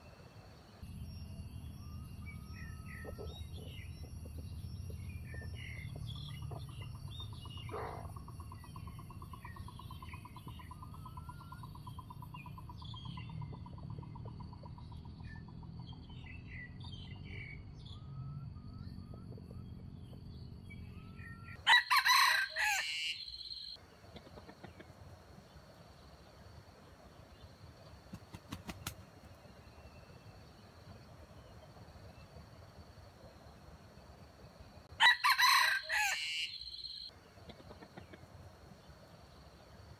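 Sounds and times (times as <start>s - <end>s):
small birds chirping: 0.8s - 21.6s, 22.7s - 35.0s
rooster crowing: 21.6s - 23.6s, 34.9s - 37.0s.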